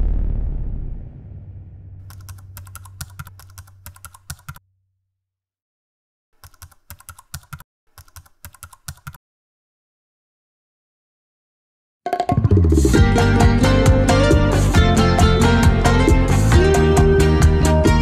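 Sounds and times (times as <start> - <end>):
low hum: 0.0 - 3.8
keyboard key clicks: 2.1 - 4.6, 6.4 - 9.2.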